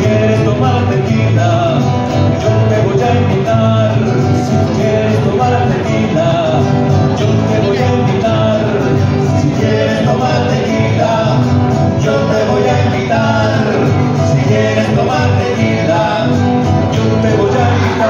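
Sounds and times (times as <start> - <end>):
person singing: 0.0 - 18.0
strummed guitars: 0.0 - 18.0.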